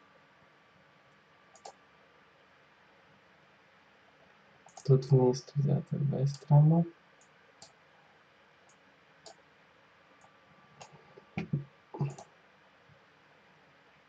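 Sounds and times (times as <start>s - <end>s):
computer mouse clicks: 1.5s - 1.8s, 4.7s - 4.9s, 10.2s - 12.3s.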